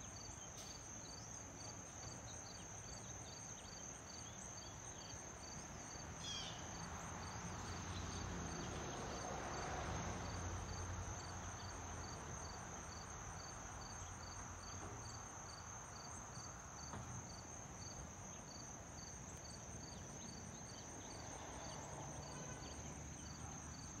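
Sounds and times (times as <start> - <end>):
insects trilling and chirping: 0.0 - 24.0.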